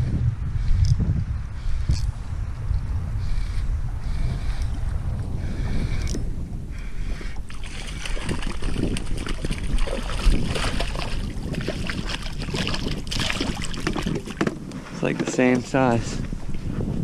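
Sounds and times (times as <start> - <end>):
wind rumble on microphone: 0.0 - 17.0
fish splashing in water: 7.5 - 14.4.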